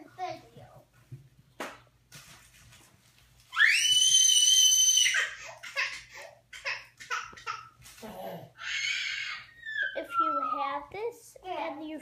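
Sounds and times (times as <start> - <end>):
child screaming: 3.5 - 5.4, 8.6 - 10.8.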